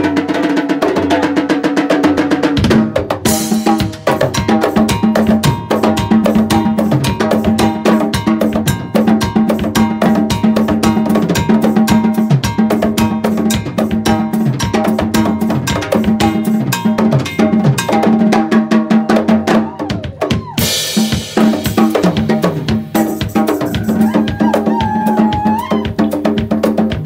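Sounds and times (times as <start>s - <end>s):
live band playing: 0.0s - 27.0s
bending guitar line: 22.0s - 26.1s.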